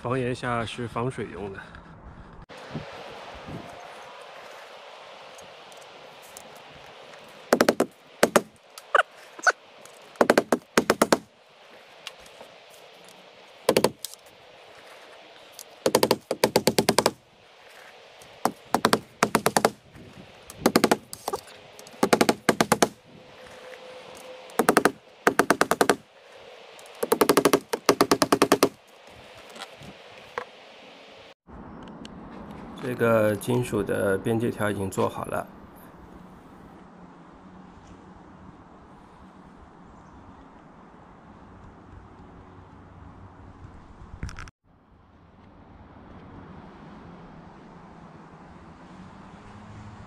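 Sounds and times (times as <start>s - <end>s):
hammer striking nails into metal: 7.6s - 8.5s, 10.2s - 11.2s, 13.7s - 14.0s, 15.9s - 17.2s, 18.5s - 19.8s, 20.5s - 21.4s, 22.0s - 23.0s, 24.6s - 26.0s, 27.0s - 28.8s.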